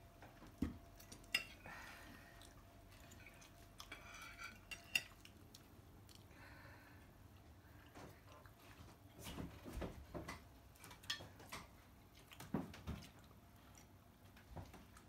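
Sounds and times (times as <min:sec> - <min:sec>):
knife and fork clinking on plate: 0:03.8 - 0:05.2.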